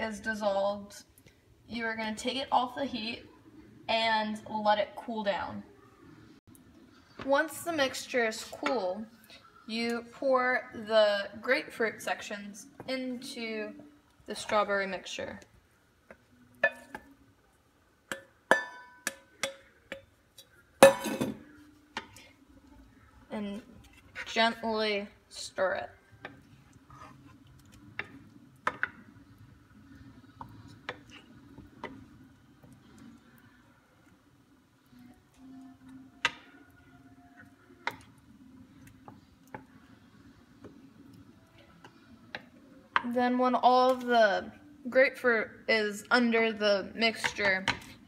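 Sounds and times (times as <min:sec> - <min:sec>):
spoon tapping against pan: 0:18.1 - 0:21.2, 0:28.0 - 0:29.0, 0:36.2 - 0:36.5
wooden spoon stirring thick mixture: 0:21.6 - 0:43.0.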